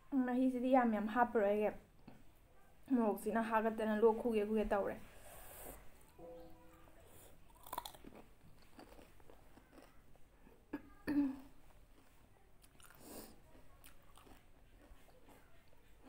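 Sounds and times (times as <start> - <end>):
soft crunching and mouth noises: 7.0 - 16.0
crisp shell crackling while chewing: 7.4 - 10.2, 11.8 - 16.0.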